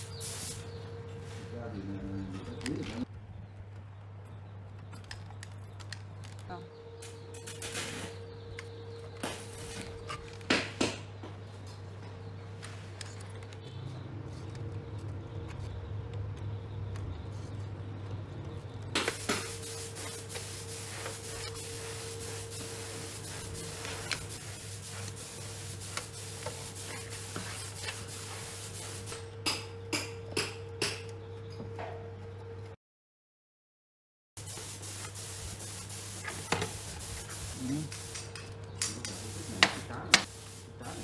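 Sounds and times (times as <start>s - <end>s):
spraying hiss: 0.0s - 0.8s, 19.0s - 29.2s, 34.4s - 41.0s.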